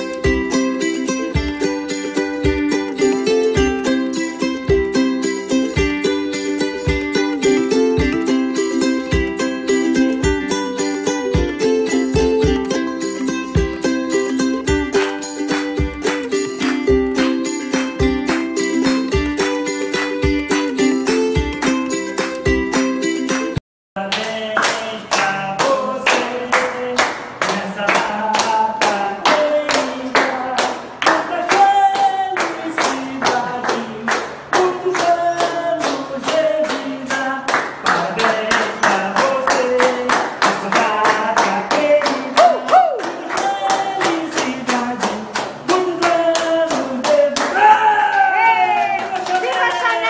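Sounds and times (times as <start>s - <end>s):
people clapping along: 13.3s - 50.0s.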